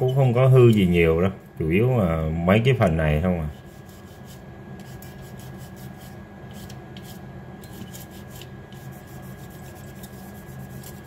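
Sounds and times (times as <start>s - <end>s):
cotton scrubbing circuit board: 3.5s - 11.0s.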